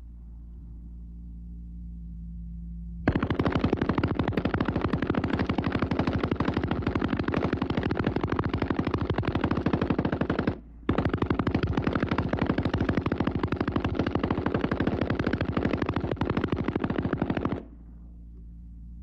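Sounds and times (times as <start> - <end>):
machine gun firing burst: 3.1 - 17.7.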